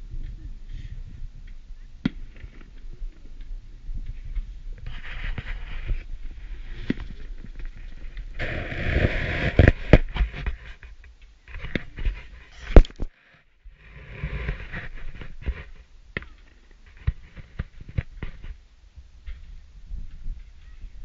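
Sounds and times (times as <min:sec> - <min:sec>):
fireworks bangs and pops: 0:06.8 - 0:10.7
fireworks hissing: 0:08.2 - 0:10.4.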